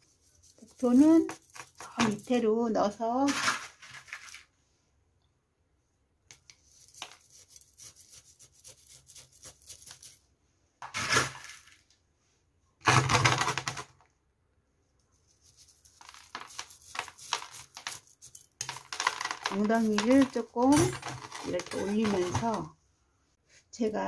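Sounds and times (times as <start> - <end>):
metal spoon scraping gravel: 0.1 - 2.3, 6.7 - 10.2, 15.5 - 22.7
gravel stones clicking and rattling: 16.0 - 22.7.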